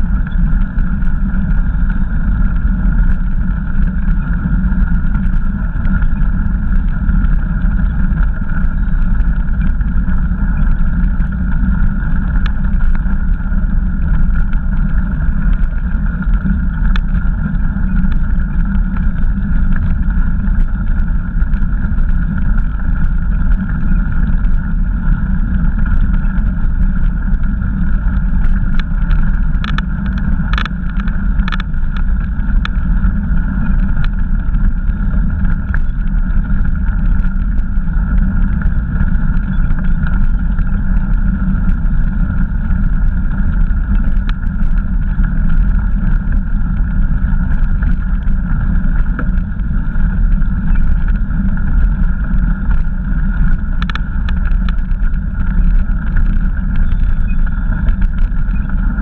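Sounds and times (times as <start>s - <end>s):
bicycle clicks and rattles: 0.0s - 59.0s
wind and tyre rumble: 0.0s - 59.0s.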